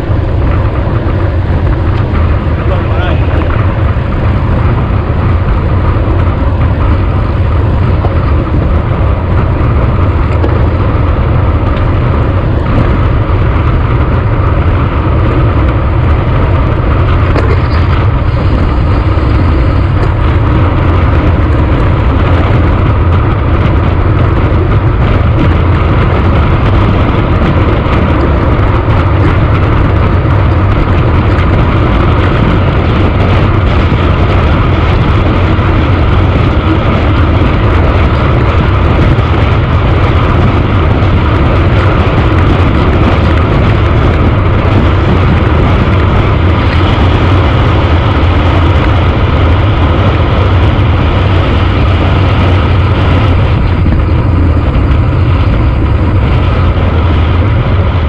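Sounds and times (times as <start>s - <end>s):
tyre road noise: 0.0s - 58.0s
wind rumble on microphone: 0.0s - 58.0s.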